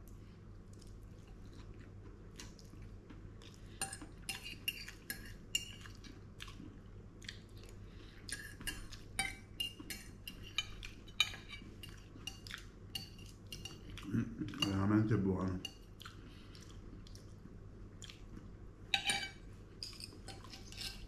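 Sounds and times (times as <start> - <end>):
cutlery clinking on plate: 19.0 - 21.0.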